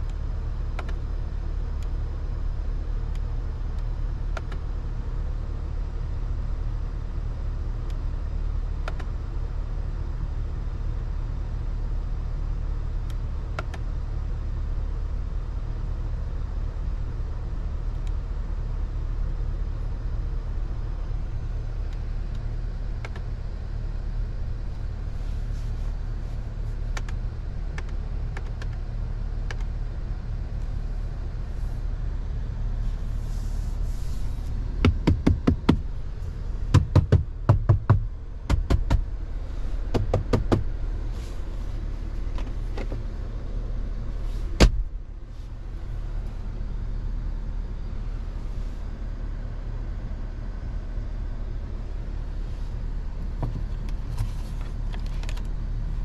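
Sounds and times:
road and engine drone: 0.0s - 56.0s
sharp knocks and clicks: 34.8s - 35.9s, 36.7s - 39.1s, 39.9s - 40.7s
loud thump: 44.6s - 44.9s.

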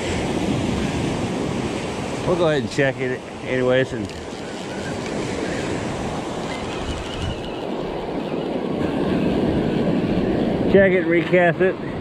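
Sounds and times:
surf: 0.0s - 12.0s
fishing reel whirring: 4.1s - 8.2s.

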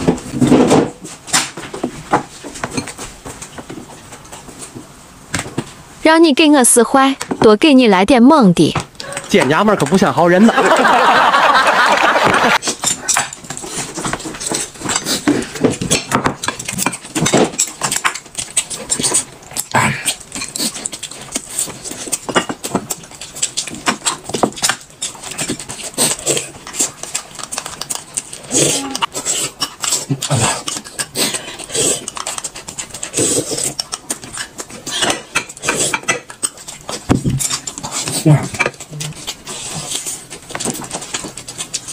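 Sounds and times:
chewing and mouth smacking: 12.6s - 41.9s.

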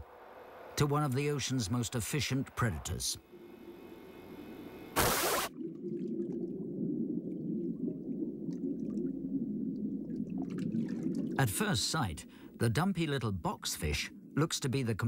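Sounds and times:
muffled low underwater rumble: 5.6s - 11.5s.

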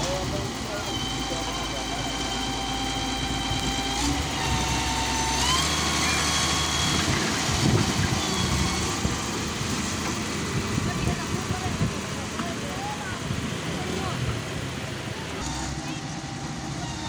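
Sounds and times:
diesel engine and hydraulics: 0.0s - 17.0s
rising whine: 12.9s - 17.0s.

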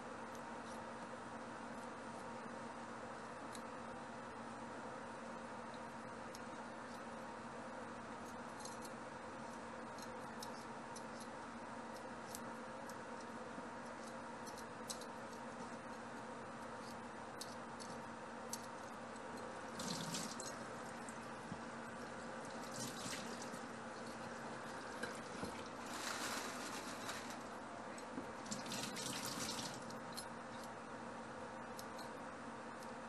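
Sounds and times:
steady hum: 0.0s - 33.0s
tap water running: 19.7s - 20.6s, 22.5s - 23.6s, 28.4s - 30.0s.

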